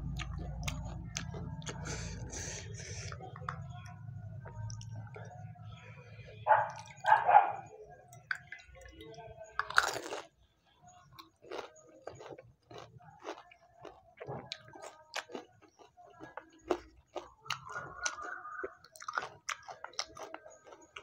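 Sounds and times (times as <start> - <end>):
crisp food crunching: 0.0 - 5.3, 9.6 - 10.3, 11.1 - 21.0
chewing: 0.0 - 7.5, 8.1 - 10.3, 11.1 - 21.0.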